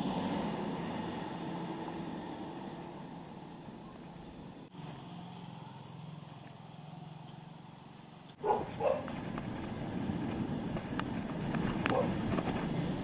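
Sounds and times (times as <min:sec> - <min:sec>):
bicycle road noise: 0:00.0 - 0:13.0
low engine hum: 0:00.0 - 0:13.0
dog barking: 0:08.4 - 0:09.1, 0:11.9 - 0:12.2.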